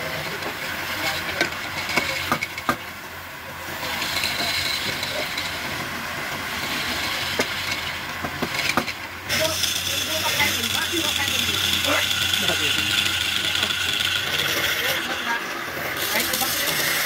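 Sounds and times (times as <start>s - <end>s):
turning tool scraping wood: 8.5s - 17.0s.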